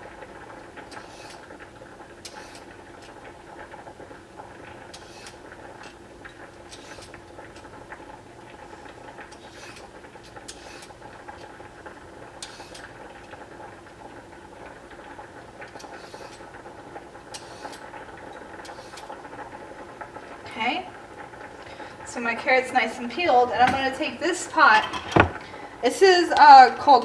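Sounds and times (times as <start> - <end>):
peeler scraping carrot: 15.8 - 16.4.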